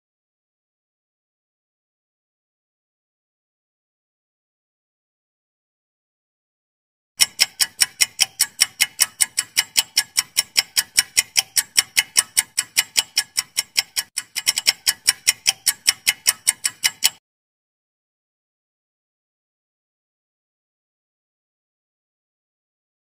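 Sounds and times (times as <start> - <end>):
rapid clock ticking: 7.2 - 17.2.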